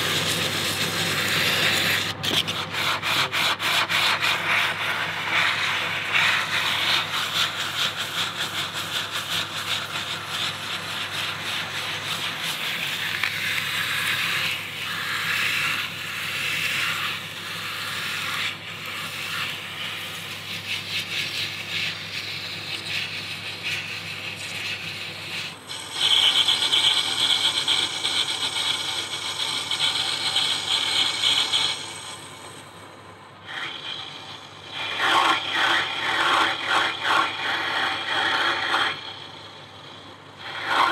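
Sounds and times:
abrasive cloth sanding metal: 0.0 - 27.4
lathe hum: 0.0 - 40.9.

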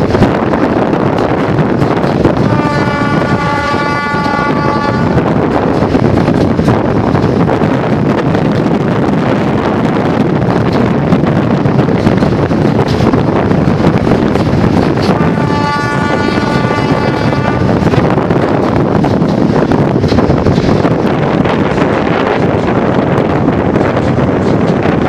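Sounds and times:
train rumbling at speed: 0.0 - 25.0
wind buffeting microphone: 0.0 - 25.0
horn-like tone: 2.5 - 5.1, 15.2 - 17.6.

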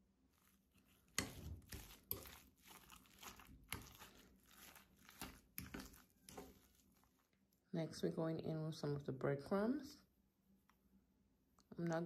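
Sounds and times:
fork squelching and scraping in bowl: 0.3 - 7.4.

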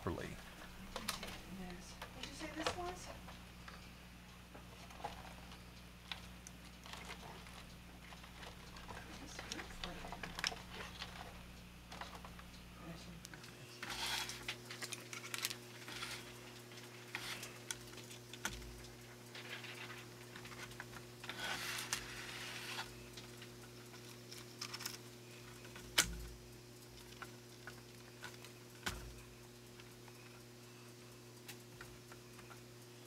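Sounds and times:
faint steady hum: 0.0 - 33.0
plastic parts rustling: 13.8 - 17.7.

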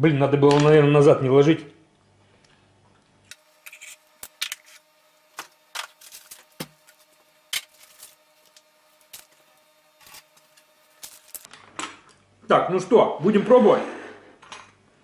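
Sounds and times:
faint steady hum: 1.0 - 13.2.

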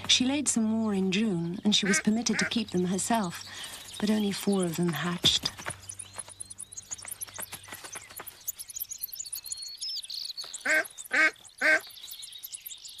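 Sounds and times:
birds twittering: 0.0 - 13.0
duck quacking: 1.8 - 2.6, 10.6 - 11.8.

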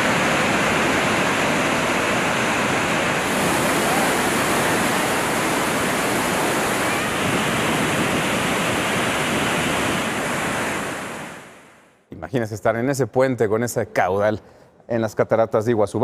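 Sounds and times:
waterfall rushing: 0.0 - 11.7.

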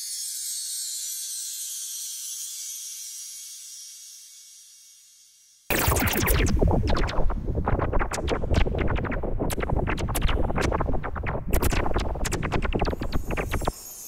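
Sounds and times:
low rumble: 5.7 - 13.7
scratchy clicks: 5.7 - 13.7.

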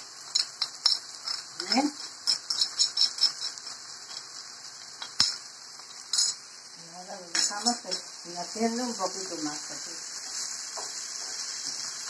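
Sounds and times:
metal spoon clinking on a plate: 2.2 - 4.3, 6.1 - 6.4.

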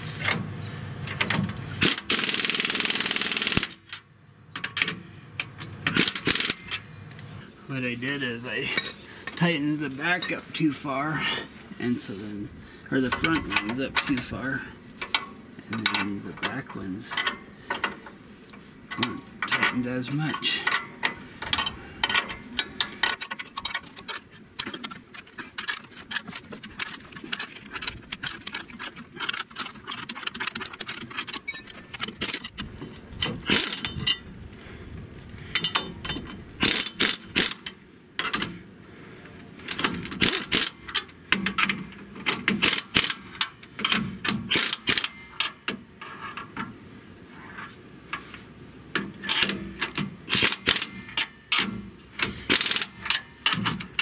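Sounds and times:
metal clinking on metal: 29.2 - 34.2
socket ratchet clicking: 49.4 - 54.0.

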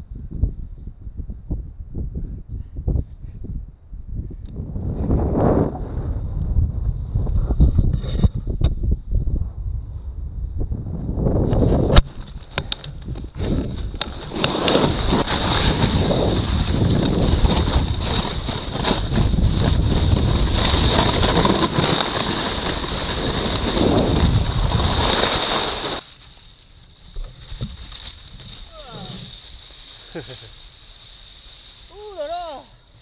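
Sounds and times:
wind rushing over microphone: 0.0 - 26.0
snowboard scraping over snow: 11.3 - 33.0.

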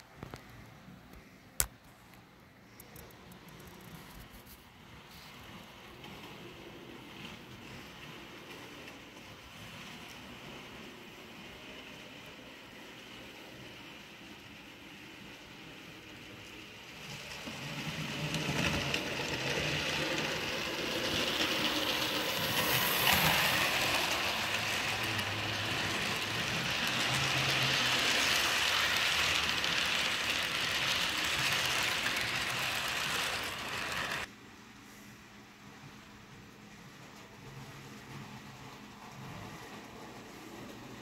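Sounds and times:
model train wheels clattering: 15.9 - 34.3.

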